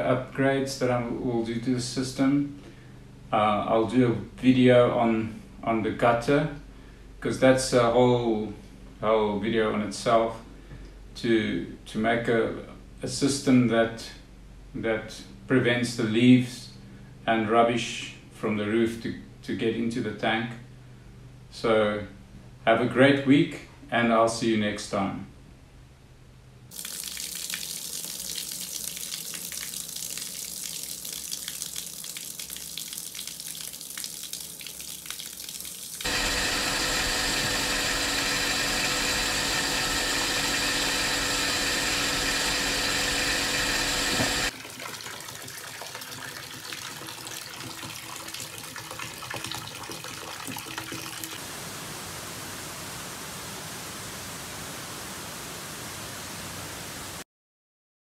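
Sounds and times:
pump humming with whine: 0.0 - 18.6, 26.7 - 52.1
tap water running: 26.7 - 51.4.

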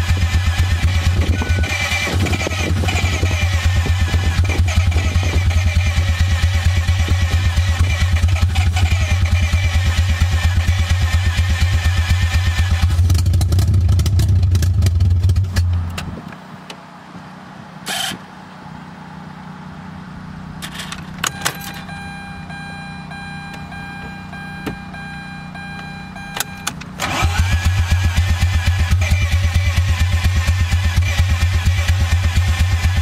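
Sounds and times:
starter motor cranking engine: 0.0 - 15.7, 17.9 - 18.2, 20.6 - 22.0, 25.6 - 33.0
steady whine: 15.5 - 29.1
clicks: 20.6 - 22.0, 23.5 - 25.0, 25.7 - 27.1.

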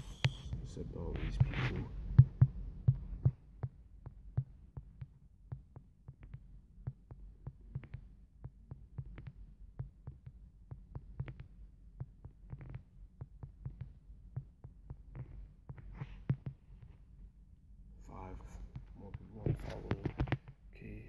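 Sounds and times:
fingertip taps on touchscreen: 1.2 - 17.0.

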